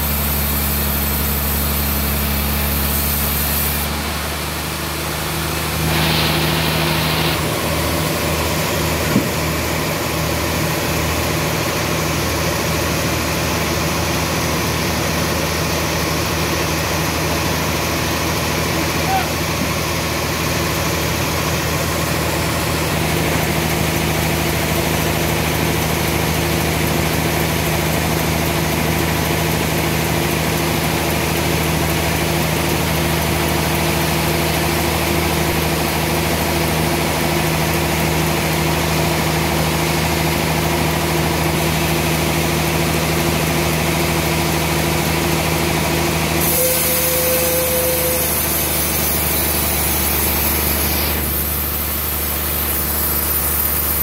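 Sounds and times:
sawmill machinery humming: 0.0 - 54.0
high hiss: 5.8 - 7.5.

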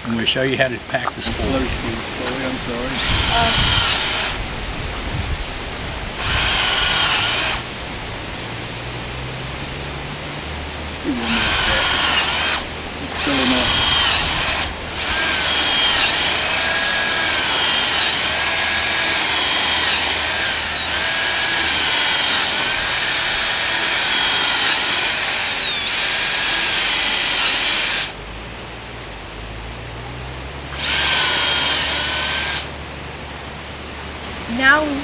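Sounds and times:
cordless drill boring into wood: 2.9 - 4.4, 6.2 - 7.7, 11.1 - 28.2, 30.7 - 32.7.

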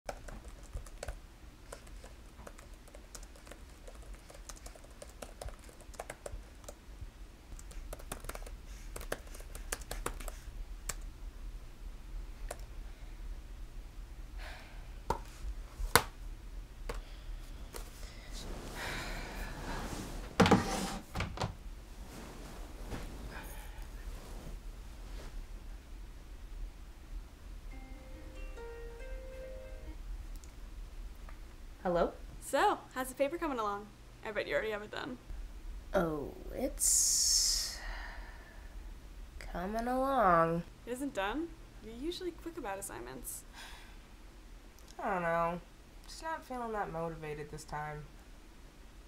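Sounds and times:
laptop keyboard typing: 0.1 - 6.8, 7.5 - 11.0
rustling: 21.9 - 25.5.

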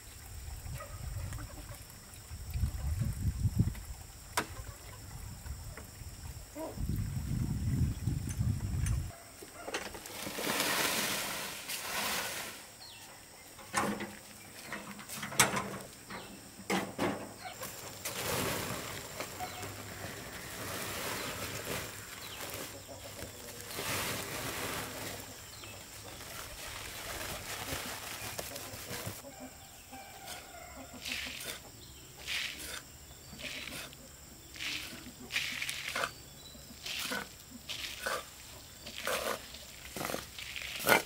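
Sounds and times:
wheelbarrow rolling over dirt: 9.6 - 13.0, 13.6 - 29.3
soil being poured: 10.0 - 12.8, 17.7 - 28.3, 36.8 - 41.0.

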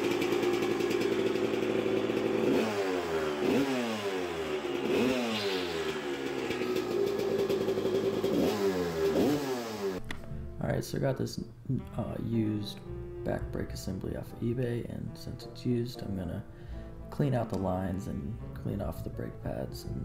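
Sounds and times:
two-stroke engine revving: 0.0 - 10.0.

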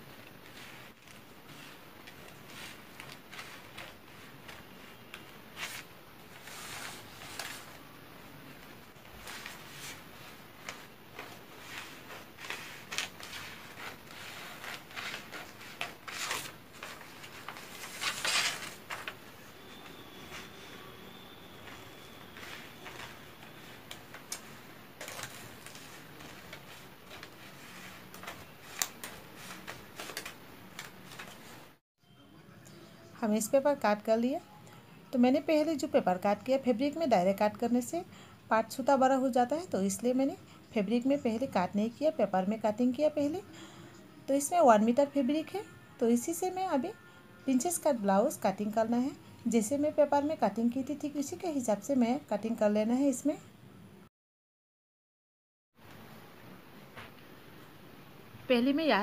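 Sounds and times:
stiff paper rustling: 0.0 - 7.8, 8.6 - 31.8.

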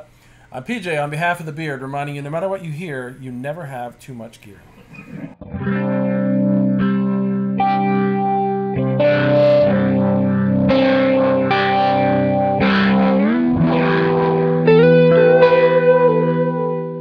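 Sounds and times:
electric guitar chords: 4.9 - 17.0
electric guitar melody: 4.9 - 17.0.

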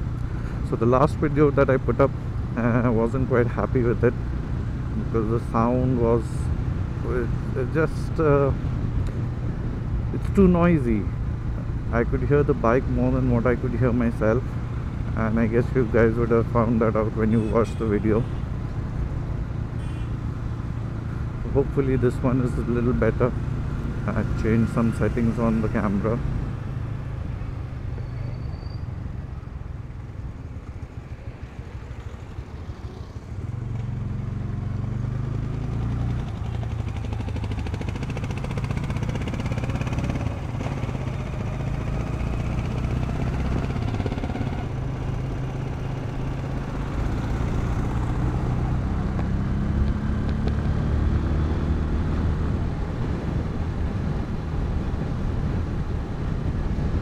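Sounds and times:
road and wind noise: 0.0 - 57.0
motorcycle engine revving: 30.3 - 57.0.

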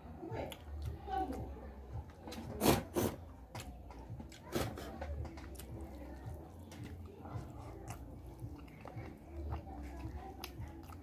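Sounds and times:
hands clicking on food: 3.4 - 11.0.

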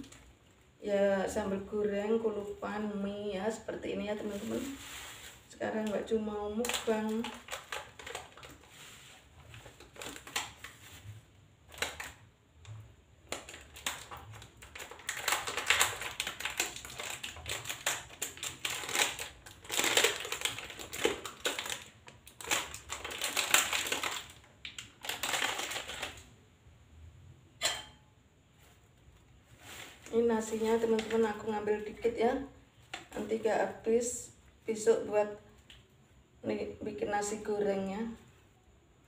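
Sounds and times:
plastic bag and wrapping rustling: 3.6 - 26.3, 28.5 - 33.9.

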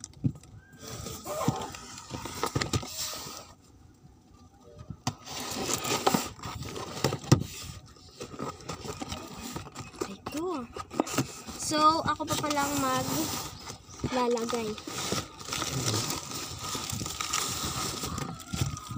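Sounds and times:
cardboard box scraping and rustling: 5.1 - 18.9.

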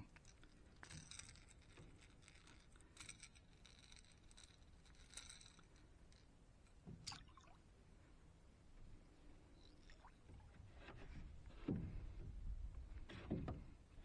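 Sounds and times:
faint scratching: 0.0 - 6.8, 9.2 - 14.0
small clicks of plastic lure: 0.0 - 7.2.

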